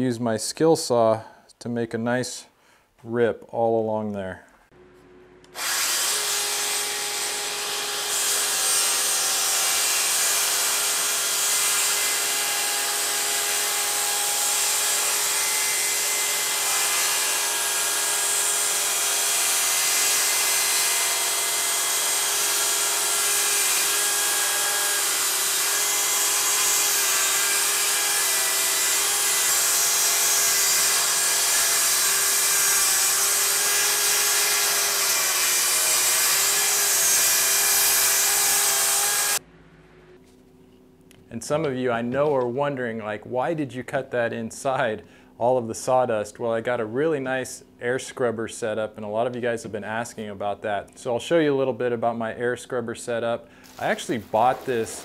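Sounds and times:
circular saw cutting wood: 5.5s - 39.4s, 53.7s - 55.0s.

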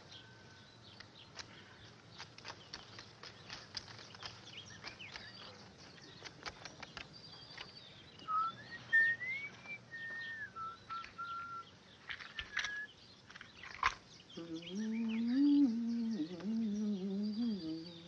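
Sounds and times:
faint bird chirps: 0.0s - 18.0s
man whistling a tune: 8.3s - 11.6s, 12.4s - 12.9s
handling clicks: 12.0s - 14.0s.

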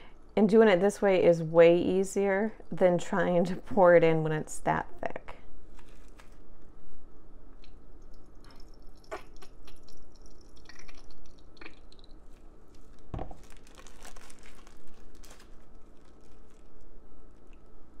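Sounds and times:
plastic bag crinkling: 5.7s - 6.4s, 12.3s - 17.6s
wet squishing of liquid soap: 8.0s - 15.6s.

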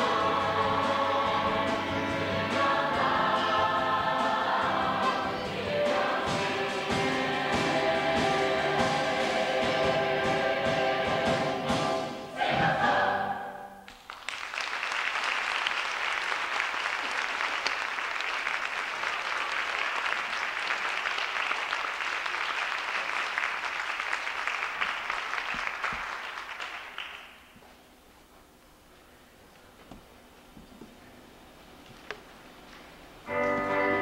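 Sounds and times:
choir singing with accompaniment: 0.0s - 13.9s
audience applauding: 13.9s - 27.5s.

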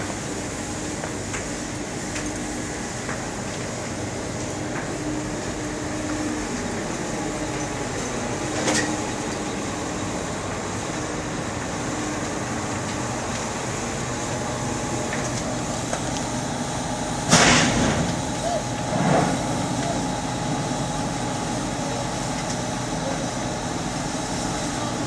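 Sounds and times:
truck fire rushing: 6.2s - 25.0s.

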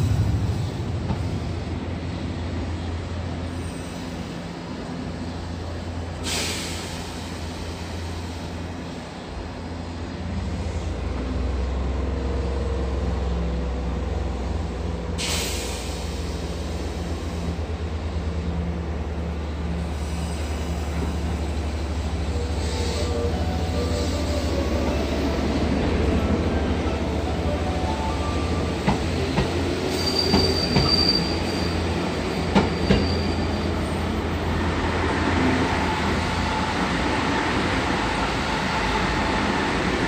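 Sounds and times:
compressed air hisses: 6.2s - 8.5s, 15.2s - 17.6s.

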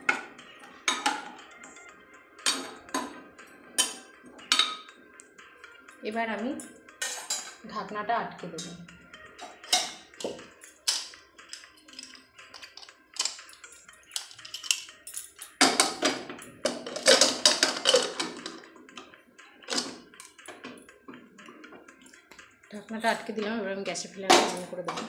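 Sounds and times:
metal lid clinking and scraping: 0.9s - 1.4s, 2.4s - 3.2s, 3.8s - 4.9s, 7.0s - 7.6s, 9.4s - 18.7s, 19.7s - 20.8s, 24.3s - 25.0s.

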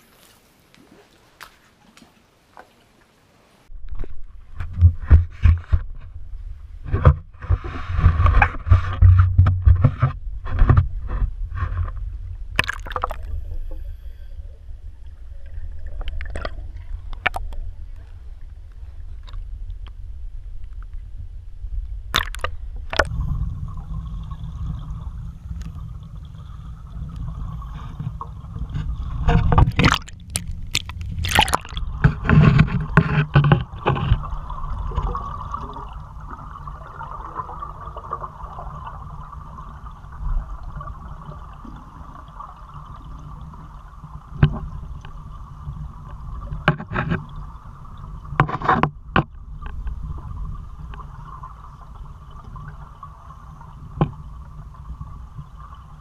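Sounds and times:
water splashing: 0.0s - 3.3s, 12.5s - 13.4s, 22.2s - 56.0s
water sloshing and gurgling: 0.0s - 21.1s, 22.1s - 56.0s
steady low rumble: 13.2s - 43.0s.

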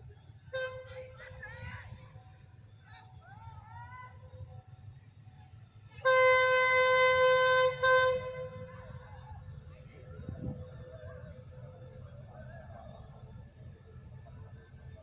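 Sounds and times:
locomotive air horn blasts: 6.0s - 8.8s.

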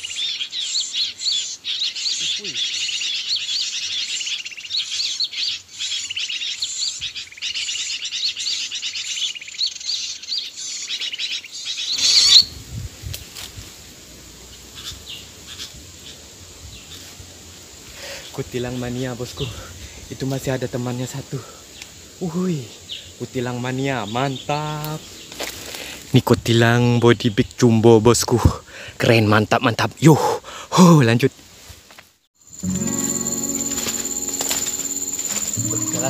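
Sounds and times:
bulbuls chattering rapidly: 33.5s - 36.0s.

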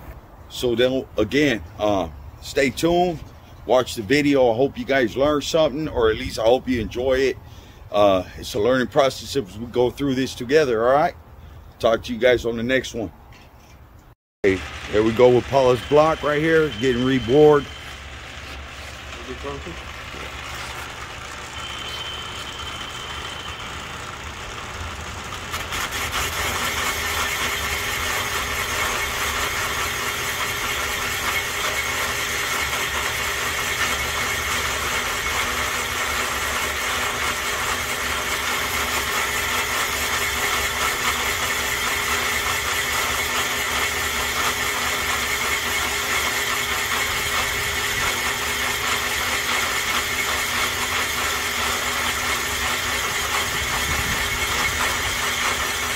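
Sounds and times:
boring machine whining: 14.4s - 55.9s.

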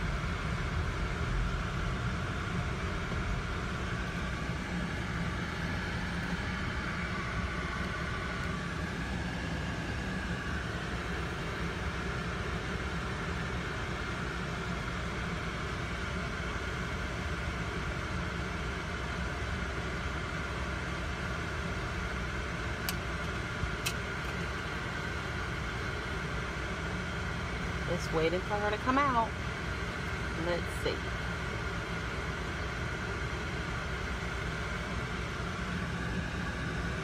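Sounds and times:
car engine idling: 0.0s - 37.0s.

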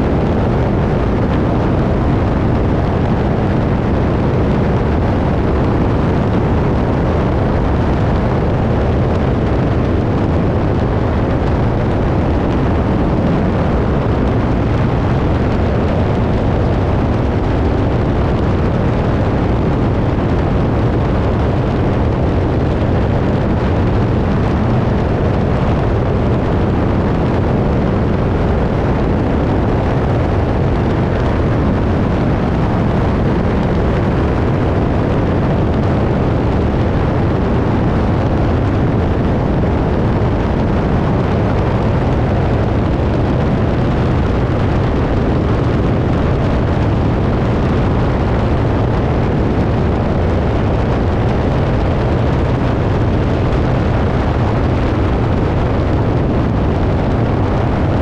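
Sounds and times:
biplane engine drone: 0.0s - 58.0s
wind buffeting microphone: 0.0s - 58.0s.

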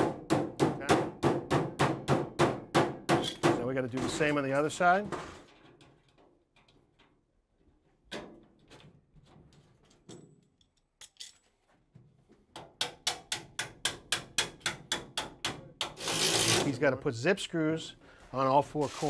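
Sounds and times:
hammer striking sheet-metal duct: 0.0s - 4.3s.

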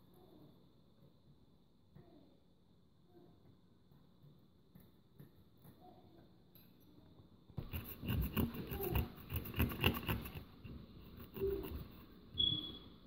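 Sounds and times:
wooden tool scraping plaster: 7.6s - 12.2s.

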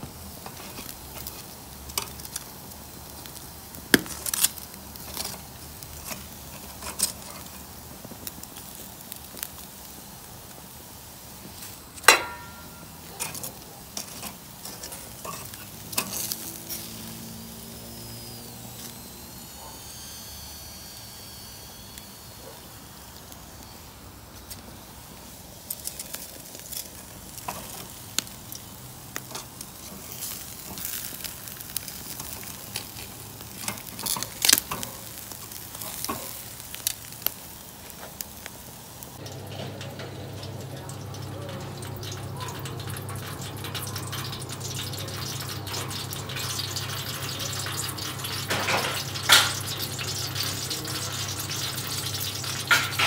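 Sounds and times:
meat sizzling on grill: 0.0s - 53.0s
metal tongs clicking on grate: 12.0s - 16.4s.

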